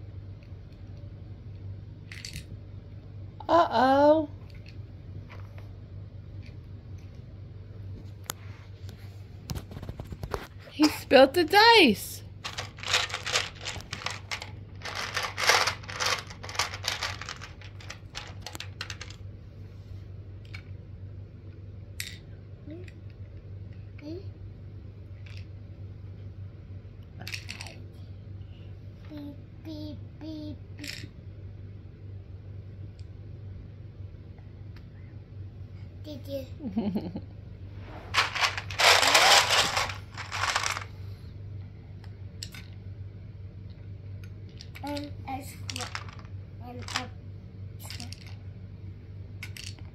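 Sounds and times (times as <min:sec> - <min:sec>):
dice clicking and rattling: 0:12.4 - 0:19.2, 0:38.1 - 0:40.9, 0:44.5 - 0:47.1, 0:47.8 - 0:48.4, 0:49.4 - 0:49.9.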